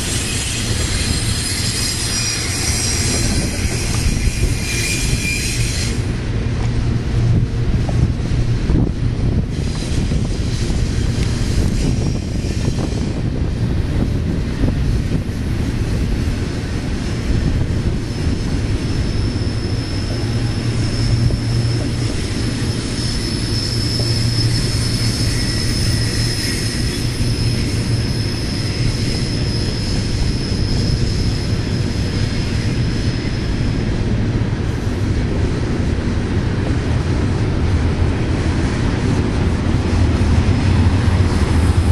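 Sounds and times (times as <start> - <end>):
wheel flange squeal: 0.0 - 6.2, 9.5 - 13.4, 17.7 - 34.0
train wheels rumbling on rails: 0.0 - 41.9.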